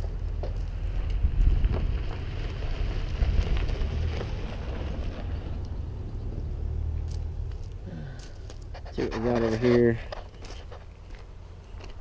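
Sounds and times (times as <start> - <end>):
wind buffeting microphone: 0.8 - 7.1.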